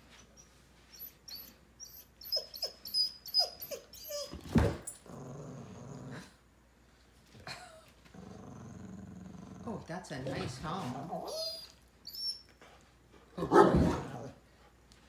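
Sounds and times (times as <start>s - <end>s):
dog whimpering: 0.3s - 4.4s, 11.0s - 12.5s
dog low humming growl: 5.0s - 6.4s, 8.1s - 9.9s.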